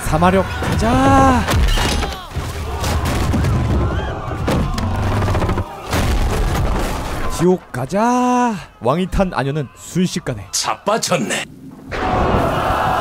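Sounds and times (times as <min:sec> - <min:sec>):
men shouting: 0:00.0 - 0:06.0, 0:08.0 - 0:11.4
wood cracking and crashing: 0:00.4 - 0:07.5.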